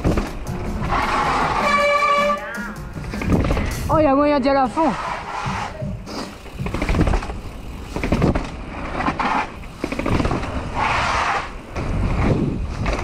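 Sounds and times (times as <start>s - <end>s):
bike knocking and rattling: 0.0s - 10.9s, 11.5s - 13.0s
wind rumble on microphone: 10.0s - 13.0s.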